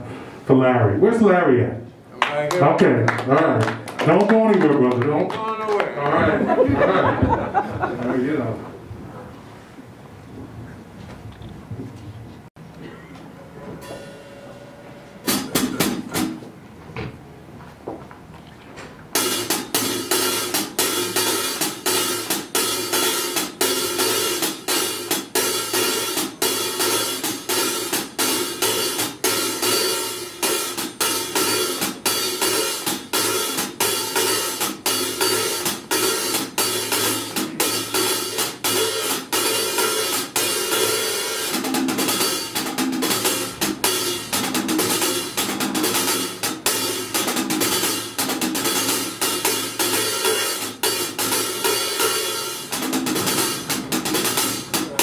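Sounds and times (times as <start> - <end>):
hi-hat played with drumsticks: 15.3 - 16.5, 19.2 - 55.0.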